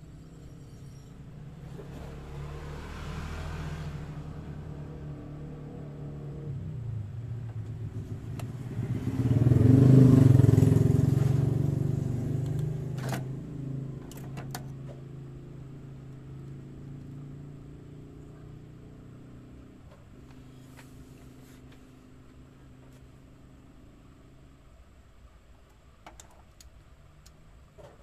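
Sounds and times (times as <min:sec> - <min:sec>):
vehicle engine passing by: 0:00.0 - 0:14.0.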